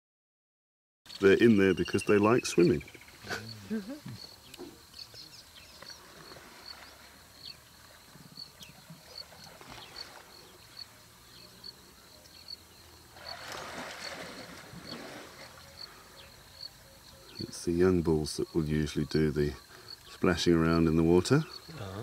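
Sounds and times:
high insect chirp: 1.1s - 22.0s
elephants splashing in water: 5.9s - 11.0s, 13.0s - 15.9s.

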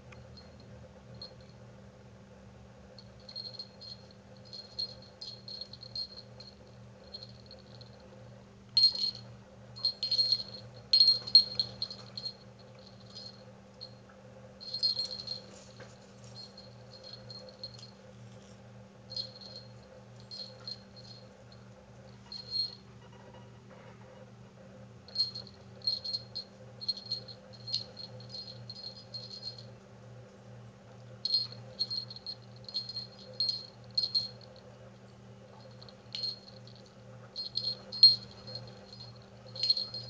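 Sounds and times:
jingle bell tinkling: 3.0s - 8.0s, 8.8s - 14.0s, 14.6s - 18.0s, 19.1s - 21.3s, 22.1s - 22.8s, 25.1s - 29.7s, 31.2s - 34.6s, 35.5s - 40.0s.

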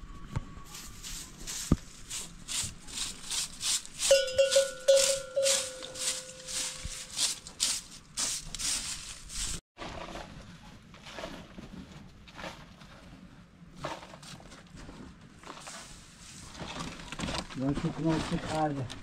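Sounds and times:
dry rustling: 0.7s - 9.6s
livestock bell clanking: 4.0s - 7.2s.

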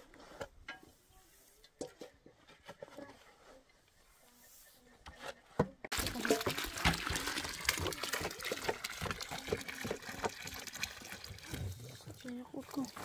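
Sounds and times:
shovel scraping soil in wheelbarrow: 0.0s - 5.6s.

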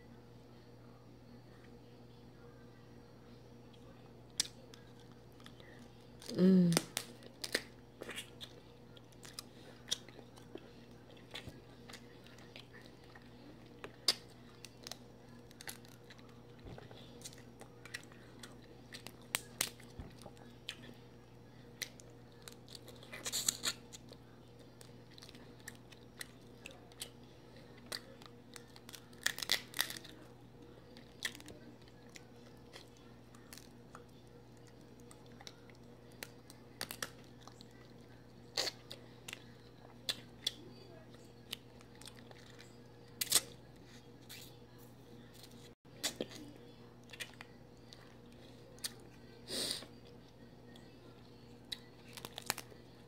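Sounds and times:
faint steady hum: 0.0s - 53.0s
chewing: 3.7s - 44.6s, 45.3s - 53.0s
crab shell cracking: 6.2s - 8.4s, 27.9s - 30.1s, 52.0s - 52.8s.

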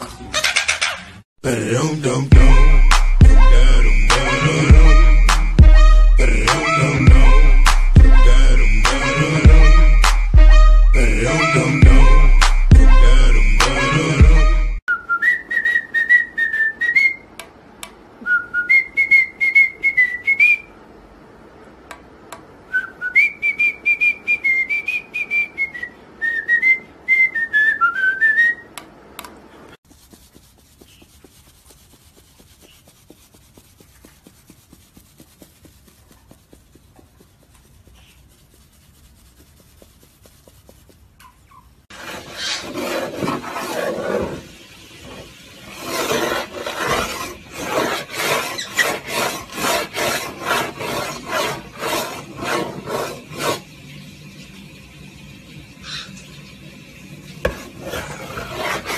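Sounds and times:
parrot whistling a tune: 14.9s - 17.3s, 18.2s - 20.7s, 22.7s - 28.7s.

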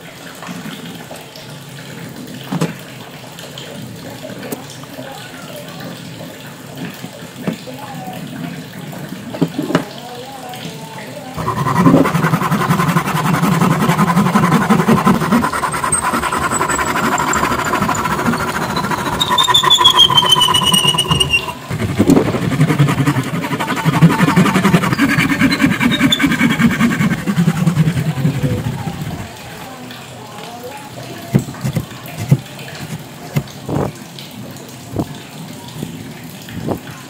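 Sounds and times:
hand saw cutting wood: 11.4s - 29.3s, 31.4s - 33.5s
thin high tone sliding down: 11.4s - 29.3s.

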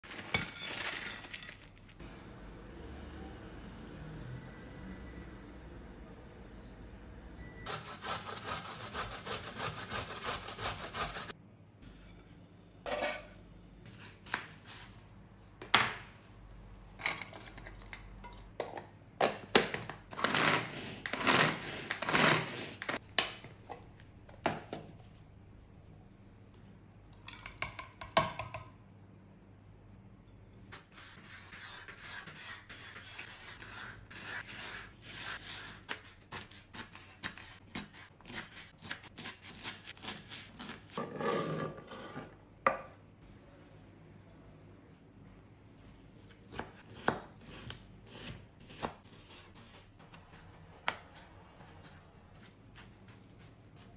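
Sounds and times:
carrot rasping on a grater: 7.7s - 11.3s
knife chopping on wooden board: 46.5s - 49.0s.

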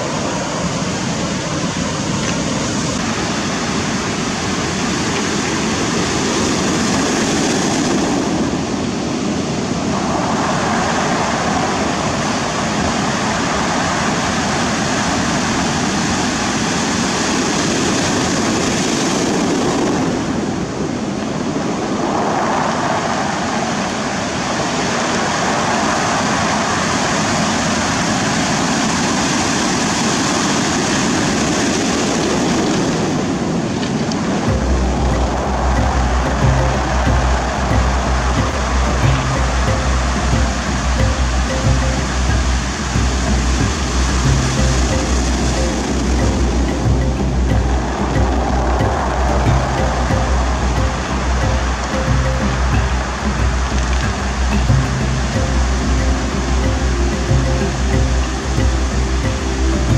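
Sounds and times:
ocean surf breaking on shore: 0.0s - 59.9s.

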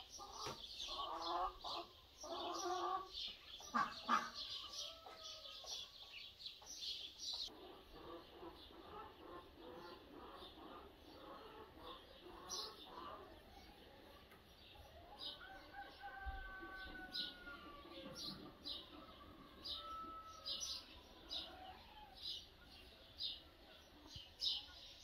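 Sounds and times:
hens clucking: 0.0s - 5.9s, 7.4s - 14.5s
small birds chirping: 0.0s - 25.0s.

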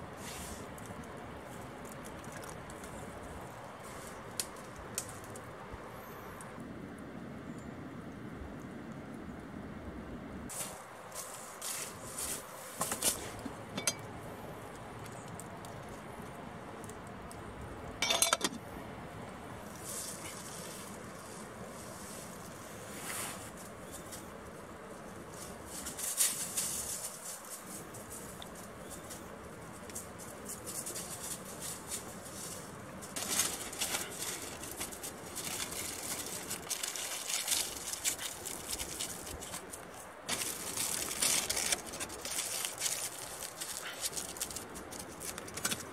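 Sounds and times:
dry leaves crunching underfoot: 10.5s - 13.4s, 19.6s - 24.3s, 25.0s - 29.3s, 30.4s - 45.9s
aluminium foil crinkling: 30.6s - 45.9s.

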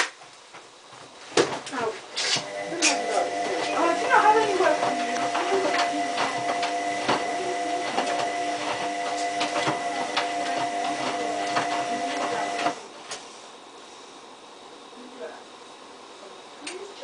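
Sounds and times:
washing machine motor whine: 1.7s - 13.1s.

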